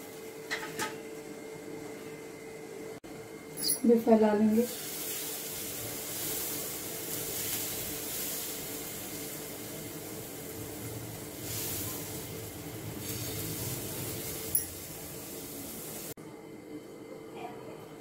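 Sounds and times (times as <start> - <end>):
batter sizzling on hot pan: 4.4 - 16.2.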